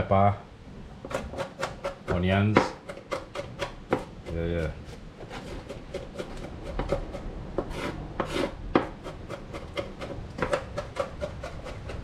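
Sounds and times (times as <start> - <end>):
knife scraping board: 1.0 - 12.0
knife chopping on plastic board: 1.1 - 12.0.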